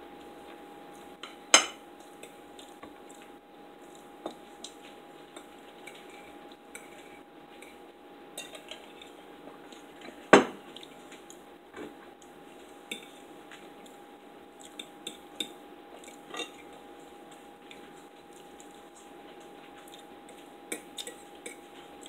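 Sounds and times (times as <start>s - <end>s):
faint steady hum: 0.0s - 22.0s
forks clinking on plates: 16.3s - 16.6s.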